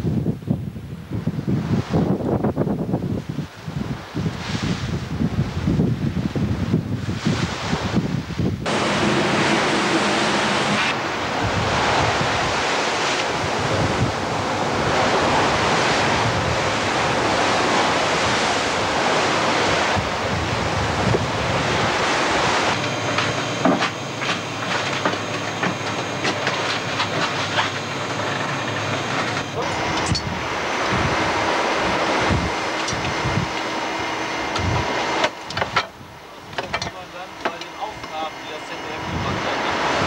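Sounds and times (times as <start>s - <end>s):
rush of open sea: 0.0s - 40.0s
wind buffeting microphone: 0.0s - 40.0s.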